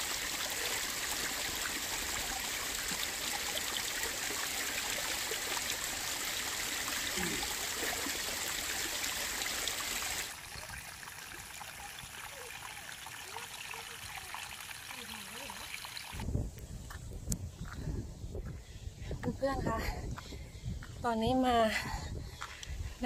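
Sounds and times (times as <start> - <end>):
water splashing over stones: 0.0 - 16.2.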